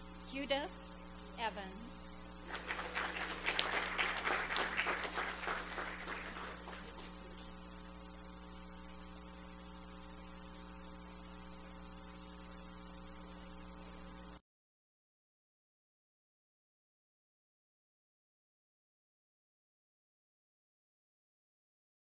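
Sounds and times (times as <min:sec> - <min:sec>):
electrical hum: 0:00.0 - 0:14.4
audience applauding: 0:02.5 - 0:07.6.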